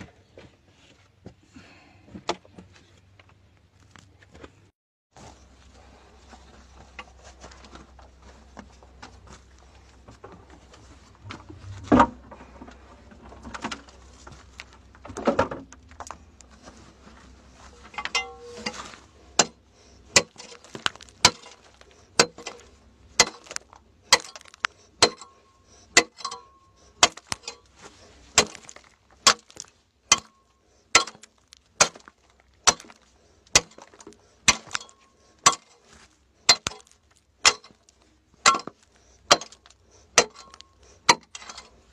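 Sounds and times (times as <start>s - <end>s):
metal tool clinking on rocky earth: 17.8s - 41.9s.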